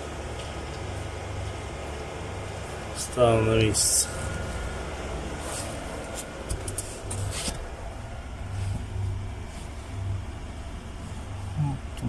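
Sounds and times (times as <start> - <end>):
air filter rustling: 0.0 - 12.0
low rumble: 3.6 - 12.0.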